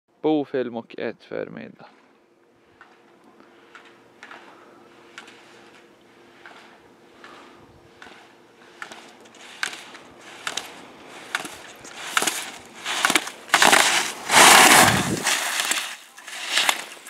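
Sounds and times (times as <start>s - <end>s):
skis scraping on hard snow: 8.8s - 17.0s.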